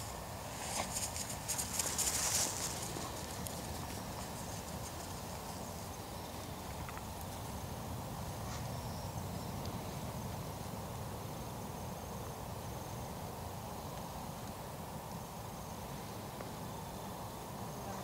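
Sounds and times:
outdoor background noise: 0:00.0 - 0:18.0.

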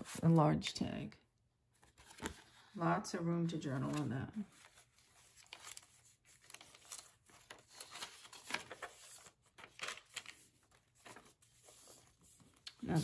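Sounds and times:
paper pages rustling: 0:01.8 - 0:02.7, 0:03.7 - 0:13.0.

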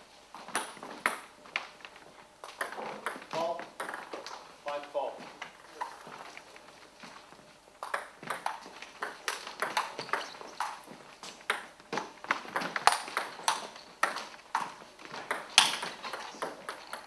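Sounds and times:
table tennis ball clicking: 0:07.8 - 0:10.8.

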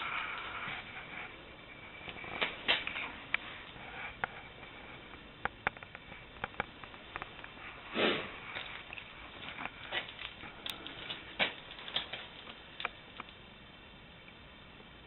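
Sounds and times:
person sniffing: 0:07.7 - 0:08.6.

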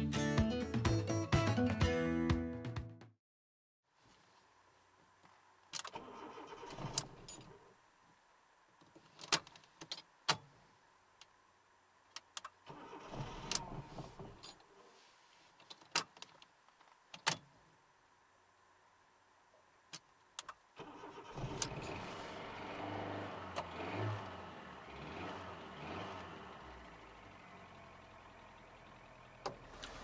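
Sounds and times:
car starter cranking engine: 0:05.8 - 0:07.6, 0:12.4 - 0:14.6, 0:20.8 - 0:30.0.

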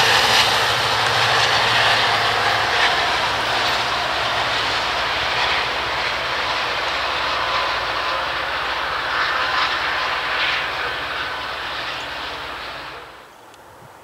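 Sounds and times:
diesel engine drone: 0:00.0 - 0:13.8
train wheels rumbling on rails: 0:00.0 - 0:14.0.

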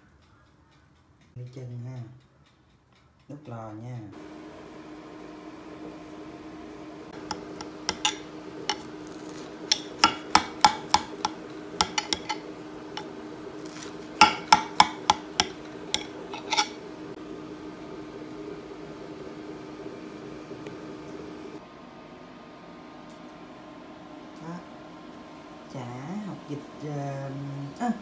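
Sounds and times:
steady low hum: 0:03.3 - 0:28.0
knife clinking on glass dish: 0:09.7 - 0:12.4, 0:14.2 - 0:16.8.

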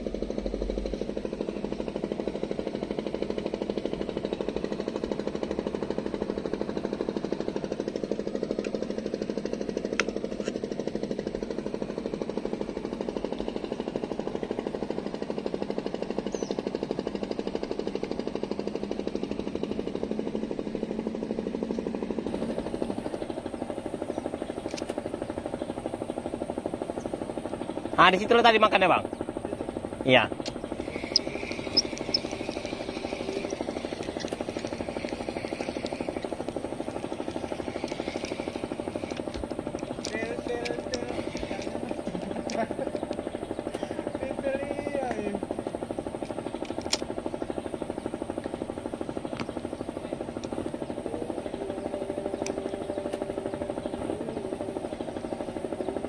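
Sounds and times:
small engine chugging: 0:00.0 - 0:56.0.

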